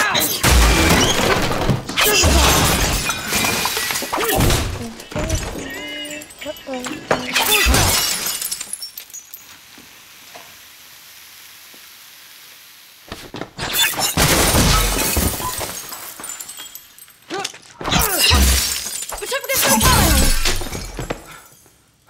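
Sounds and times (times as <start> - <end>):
glass shattering: 0.0 - 9.6, 13.6 - 21.7.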